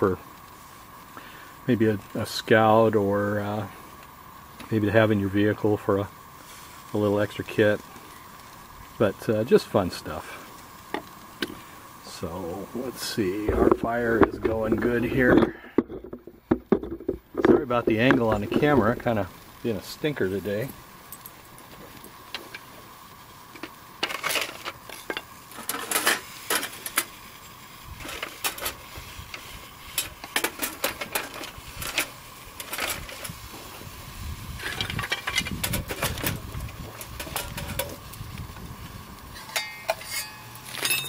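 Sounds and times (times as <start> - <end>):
metal clinks and rattles: 39.4 - 41.0.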